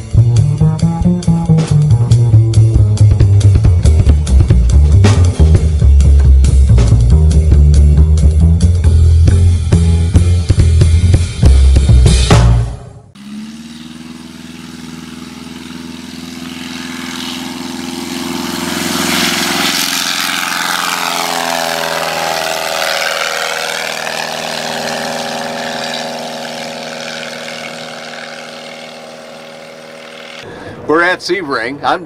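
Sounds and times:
light aircraft engine and propeller: 0:13.2 - 0:30.7.

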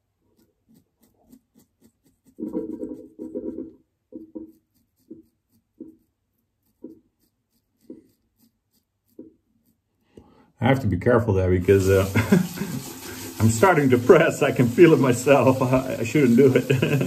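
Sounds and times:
razor scraping beard stubble: 0:00.0 - 0:10.0.

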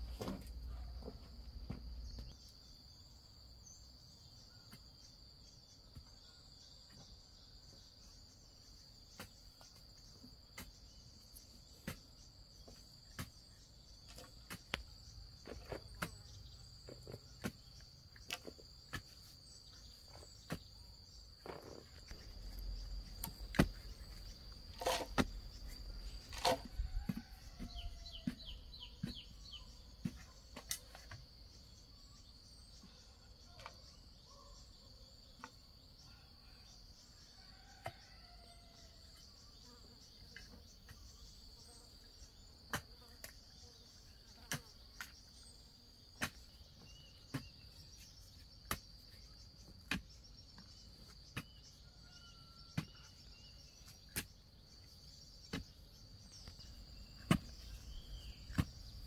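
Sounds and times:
insects trilling: 0:00.0 - 0:59.0.

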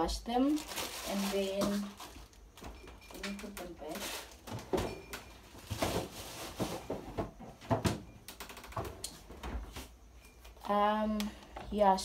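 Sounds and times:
kitchen items knocking and clattering: 0:00.6 - 0:08.2.

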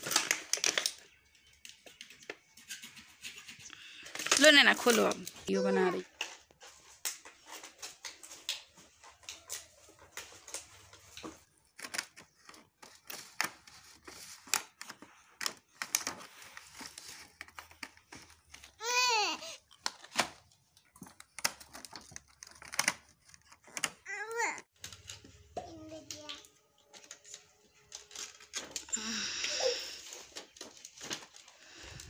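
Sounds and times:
plastic packaging crinkling: 0:00.0 - 0:02.5, 0:03.4 - 0:24.1, 0:26.1 - 0:32.0
child calling out: 0:05.5 - 0:06.0.

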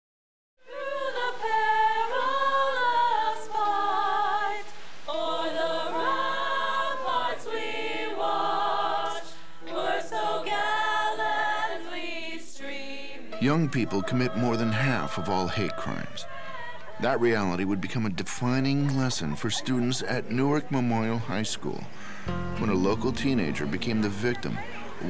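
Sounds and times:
young voices singing a cappella: 0:00.6 - 0:17.9.

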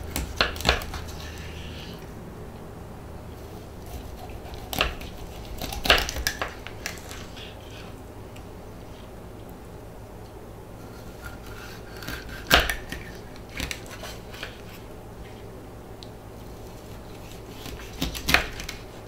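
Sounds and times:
knife sawing through fish: 0:00.0 - 0:02.0, 0:03.8 - 0:08.0, 0:10.8 - 0:14.9, 0:16.6 - 0:19.0.

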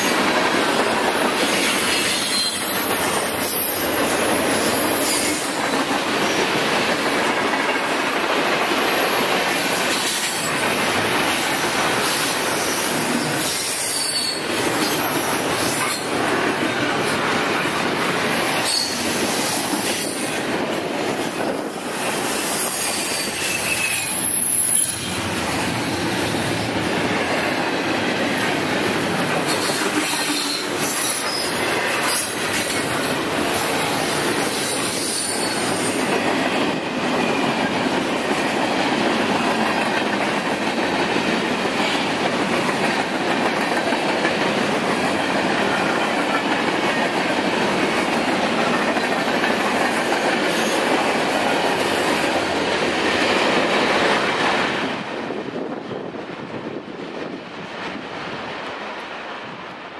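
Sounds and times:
train wheels clattering on rails: 0:00.0 - 0:59.8
high-pitched wheel squeals: 0:02.2 - 0:03.8, 0:13.2 - 0:15.0, 0:18.6 - 0:19.0, 0:22.7 - 0:25.1.

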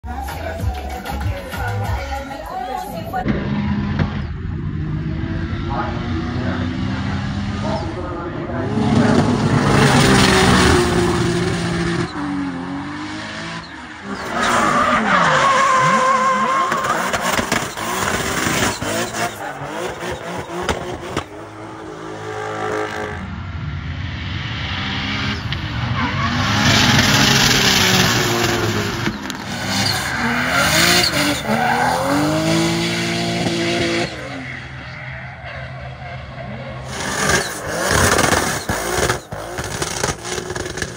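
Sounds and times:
car engine revving hard: 0:03.3 - 0:23.3, 0:24.6 - 0:35.0, 0:36.2 - 0:40.9
tyres squealing: 0:13.6 - 0:20.9, 0:26.0 - 0:40.9.

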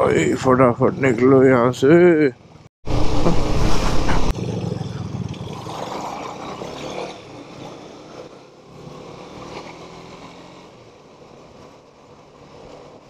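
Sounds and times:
wind rush: 0:02.9 - 0:04.4.

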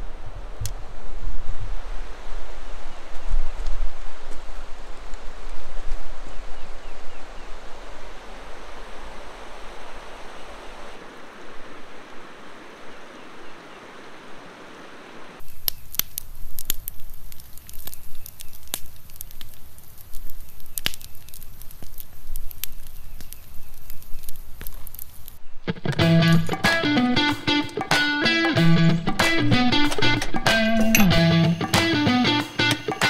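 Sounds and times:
river rushing: 0:06.7 - 0:15.4
campfire crackling: 0:10.9 - 0:33.0.

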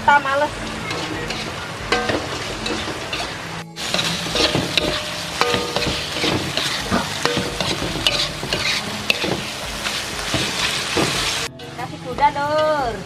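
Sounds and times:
paste sizzling in a wok: 0:00.0 - 0:11.8
metallic pan rings: 0:00.2 - 0:09.6
metal spatula scraping: 0:00.4 - 0:11.8.

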